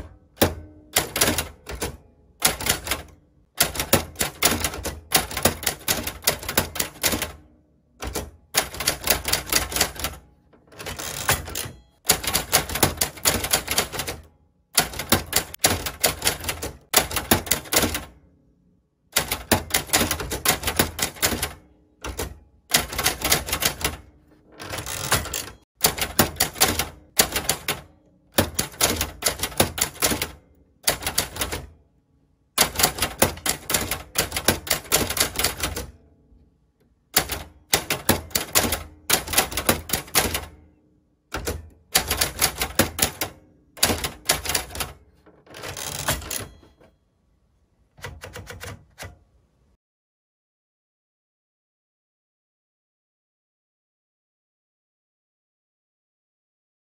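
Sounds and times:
typewriter key strikes: 0.0s - 7.4s, 8.0s - 18.2s, 19.2s - 31.7s, 32.6s - 36.0s, 37.1s - 40.6s, 41.3s - 46.9s, 48.0s - 49.2s.

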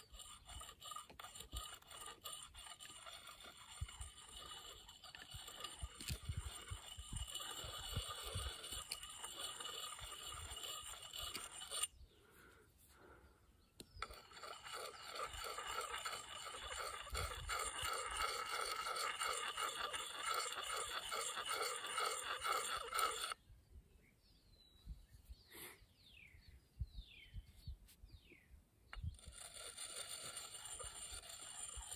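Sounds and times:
stone scraping on axe blade: 0.0s - 12.0s, 13.8s - 23.4s, 29.0s - 31.9s.

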